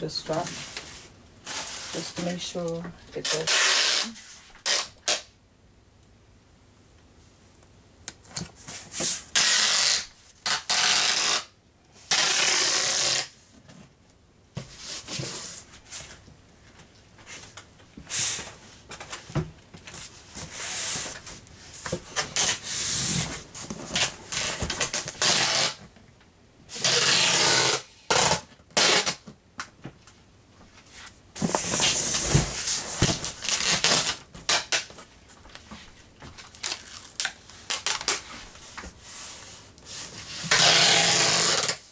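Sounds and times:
hands rubbing tape down: 3.2s - 5.3s, 8.6s - 11.5s, 12.1s - 13.3s, 19.9s - 25.8s, 26.7s - 29.2s, 30.8s - 41.8s
packing tape rasping off dispenser: 3.2s - 5.3s, 9.0s - 13.4s, 22.1s - 25.8s, 26.7s - 29.2s, 31.4s - 35.0s, 36.5s - 38.3s, 40.2s - 41.9s.

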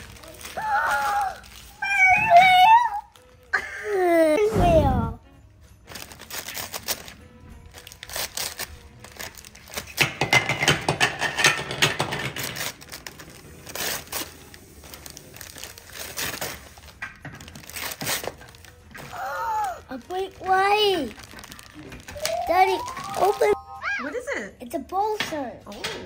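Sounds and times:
wrapping paper crinkling: 0.0s - 4.4s, 5.9s - 10.1s, 12.3s - 23.6s
plastic bag rustling: 0.0s - 5.0s, 5.9s - 10.0s, 12.2s - 23.6s
background music: 0.0s - 26.0s.

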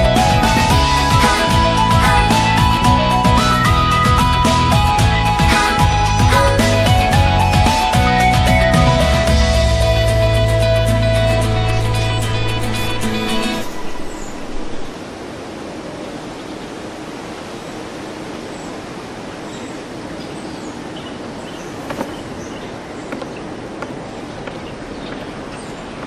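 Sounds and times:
background music: 0.0s - 14.4s.

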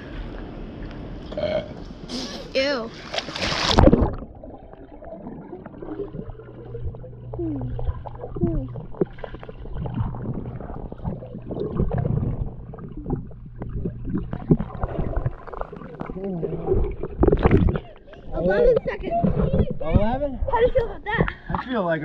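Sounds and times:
steady low hum: 0.0s - 21.6s
splash into pool: 3.0s - 4.3s
underwater gurgling and bubbling: 3.6s - 20.6s.

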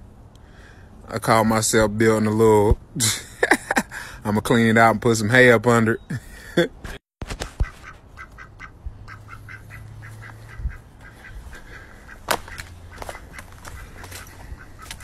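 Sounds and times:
ducks quacking: 7.4s - 15.0s.

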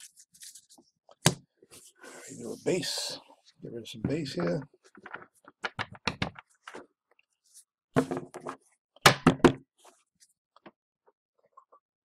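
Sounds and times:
cards knocking on wooden desk: 8.0s - 9.6s.

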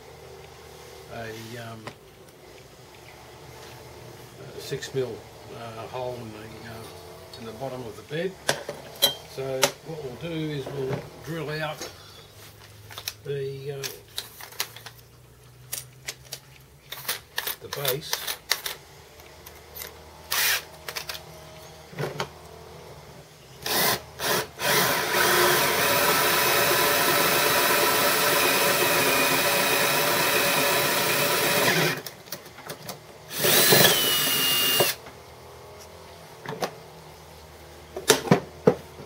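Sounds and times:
power drill drilling into metal: 20.3s - 21.0s, 23.6s - 32.1s, 33.3s - 35.0s.

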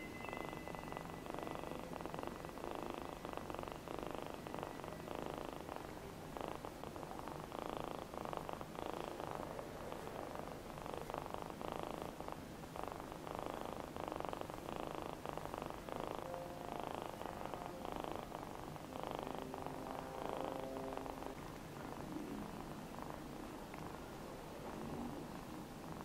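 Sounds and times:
kitten purring: 0.0s - 26.0s.

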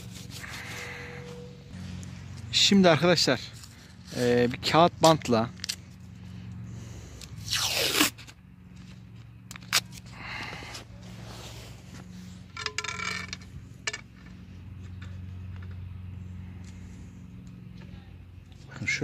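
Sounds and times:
paper tape rustling and crinkling: 0.0s - 1.0s
tape ripping: 7.4s - 8.4s, 9.5s - 10.1s.

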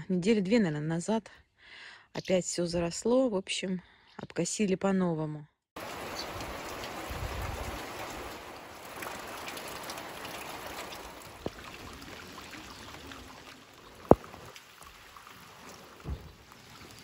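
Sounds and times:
steady rain falling: 5.8s - 17.0s
water splashing into metal barrel: 5.8s - 17.0s.

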